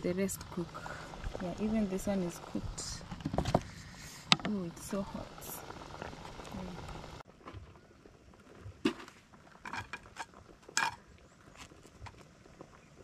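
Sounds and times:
cooking pots and utensils clinking: 9.6s - 11.0s.

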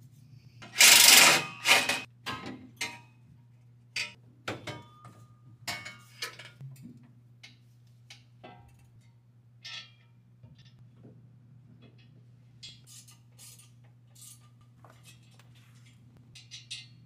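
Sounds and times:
metal pipe clanks and knocks: 4.0s - 11.2s, 11.8s - 12.9s, 16.4s - 17.0s.

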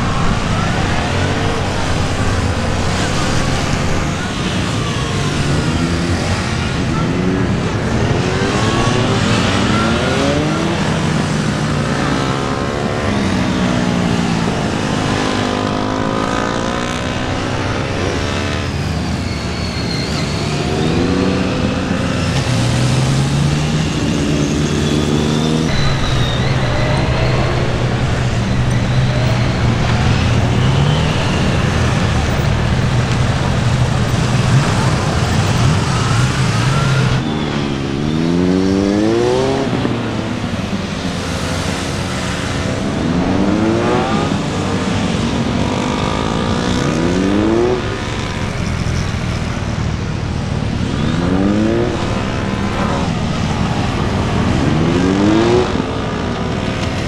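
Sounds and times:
motorcycle engine revving: 20.2s - 57.0s.

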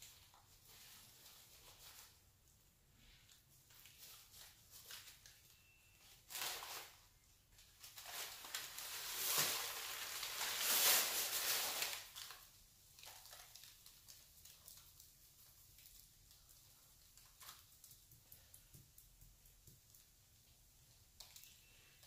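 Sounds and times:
netted bag and paper rustling: 0.0s - 2.4s, 3.0s - 15.1s.

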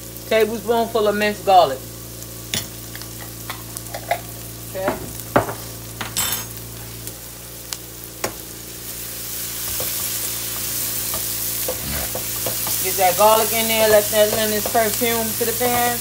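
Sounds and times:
onions sizzling in oil: 0.0s - 16.0s
utensil knocking against pan: 13.8s - 14.9s.

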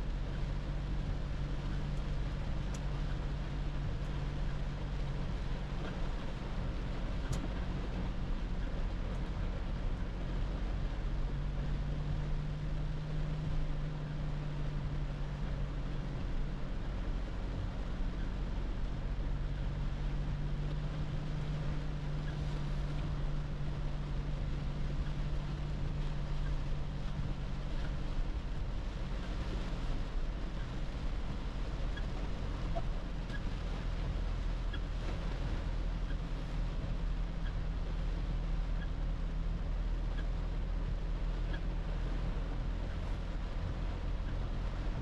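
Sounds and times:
car engine drone: 0.0s - 45.0s
tyre noise on wet road: 0.0s - 45.0s
faint tick: 1.5s - 3.3s, 5.8s - 6.4s, 7.2s - 8.0s, 8.6s - 9.4s, 20.6s - 23.2s, 25.0s - 33.7s, 41.3s - 41.7s.

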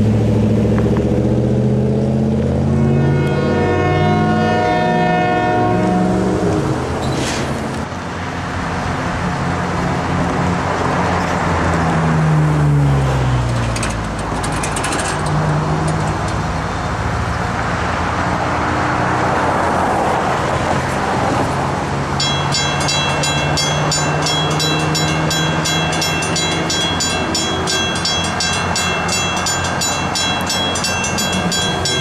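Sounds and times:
traffic passing: 0.0s - 32.0s
vehicle passing by: 0.0s - 32.0s
train horn blast: 2.6s - 6.8s.

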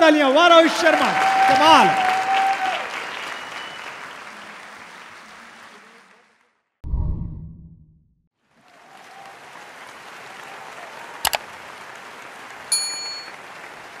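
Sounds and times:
low boom: 6.8s - 8.2s
bell-like notification ding: 12.7s - 13.3s.

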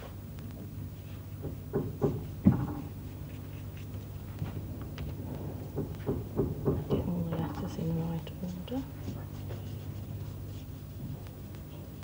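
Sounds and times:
steady low hum: 0.0s - 12.0s
taps and knocks on a table: 1.4s - 2.9s, 5.8s - 7.2s.

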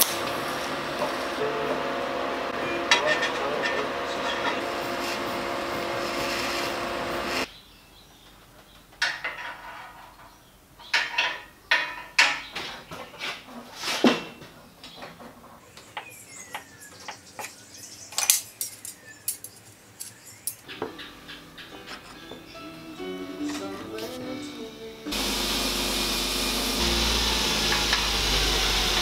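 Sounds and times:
welding arc: 0.0s - 7.5s, 25.1s - 29.0s.

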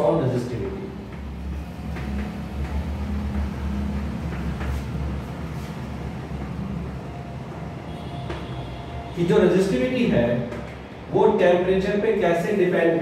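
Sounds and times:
steady low hum: 0.0s - 8.1s.

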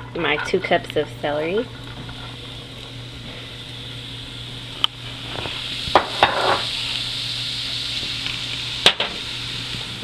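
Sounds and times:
celery sizzling in butter: 0.0s - 10.0s.

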